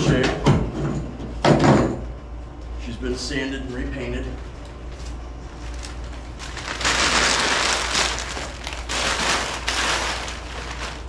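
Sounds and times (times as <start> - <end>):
cloth rustling and crinkling: 5.5 - 11.0.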